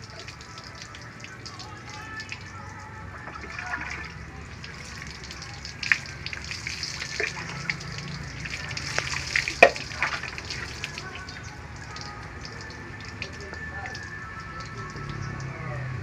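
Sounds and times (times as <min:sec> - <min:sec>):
water dripping onto floor: 0:00.0 - 0:15.7
water poured over dog: 0:03.2 - 0:15.4.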